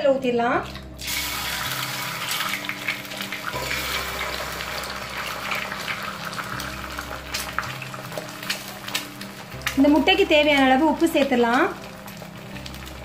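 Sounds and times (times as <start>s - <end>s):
eggs sizzling in hot oil: 0.6s - 13.0s
oil crackling and spattering: 0.7s - 13.0s.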